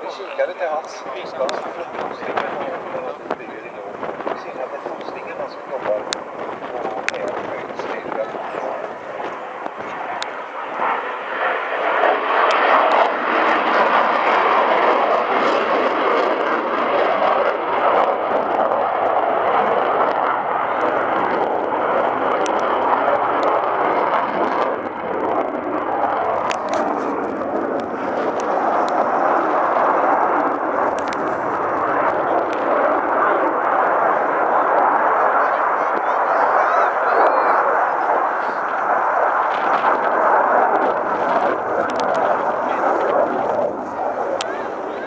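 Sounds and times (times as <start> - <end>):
jet flying past: 0.0 - 45.0
faint clicks: 6.0 - 6.3, 30.9 - 31.3, 41.3 - 42.3.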